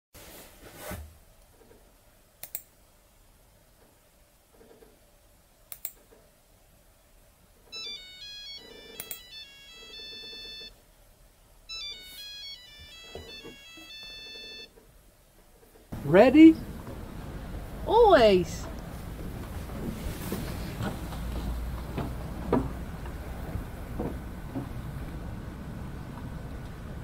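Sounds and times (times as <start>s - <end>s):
computer mouse clicks: 2.4s - 2.7s, 5.7s - 6.2s
phone ringtone melody: 7.7s - 10.7s, 11.7s - 14.7s.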